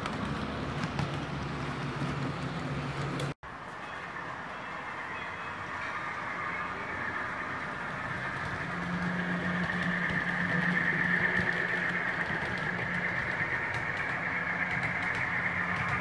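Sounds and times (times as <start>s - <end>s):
engine-like machinery hum: 0.0s - 16.0s.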